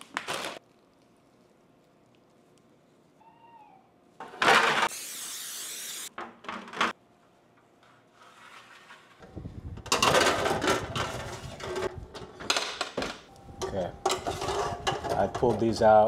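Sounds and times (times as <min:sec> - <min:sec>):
metal sheet pan scraping: 0:08.2 - 0:09.2.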